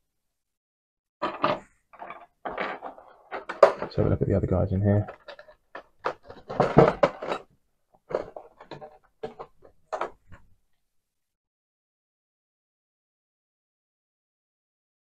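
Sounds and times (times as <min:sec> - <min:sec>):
plastic clicks and rattles: 0:01.2 - 0:04.1, 0:05.0 - 0:10.5.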